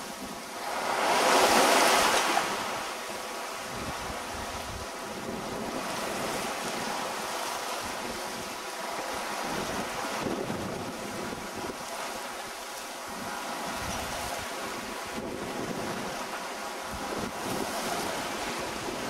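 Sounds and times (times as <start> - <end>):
water rushing past hull: 0.0 - 19.0
wind on microphone: 0.0 - 19.0.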